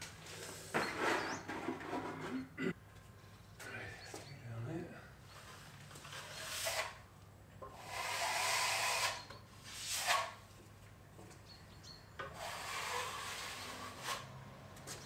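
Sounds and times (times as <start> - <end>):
trowel scraping wet plaster: 6.0 - 7.0.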